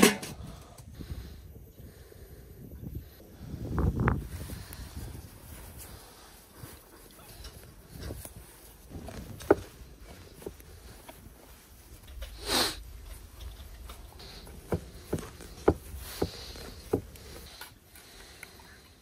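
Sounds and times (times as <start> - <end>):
breathy rustle: 3.1 - 19.0
pats and knocks on wooden board: 14.6 - 17.2.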